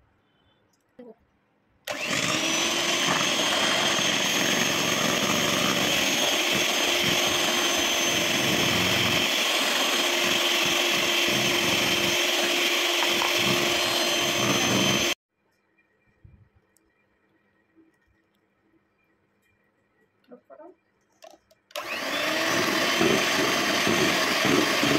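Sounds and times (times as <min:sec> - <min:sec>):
electric mixer whining: 0:01.9 - 0:15.2, 0:21.7 - 0:24.9.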